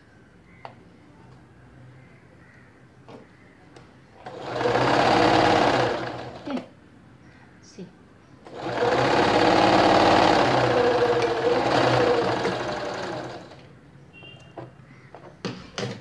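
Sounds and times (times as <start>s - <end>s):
sewing machine stitching: 4.2s - 6.7s, 8.5s - 13.7s.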